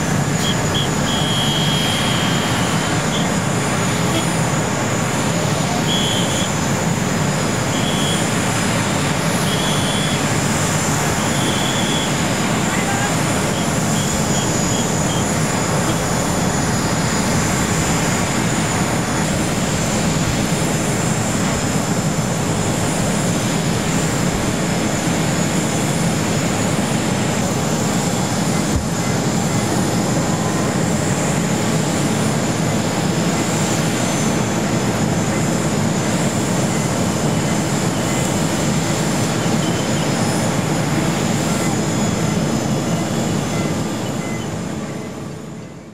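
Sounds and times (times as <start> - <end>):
steady high whine: 0.0 - 45.9.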